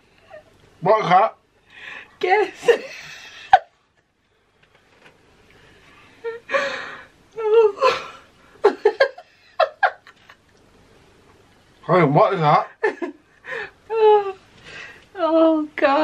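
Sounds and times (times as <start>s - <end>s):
woman laughing hard: 2.6s - 3.7s, 7.6s - 10.4s.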